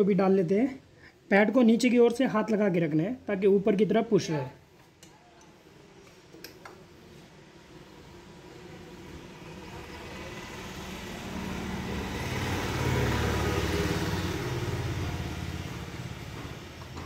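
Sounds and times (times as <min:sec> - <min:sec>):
vehicle engine passing by: 0:08.9 - 0:17.0.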